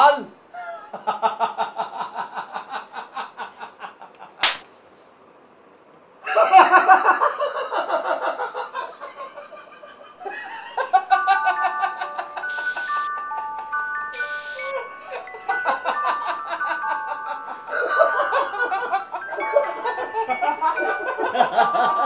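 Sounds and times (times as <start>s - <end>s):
men laughing heartily: 0.7s - 4.4s, 6.2s - 12.5s, 14.8s - 22.0s
sharp smack: 4.4s - 4.7s
chiming glockenspiel-like tune: 10.8s - 22.0s.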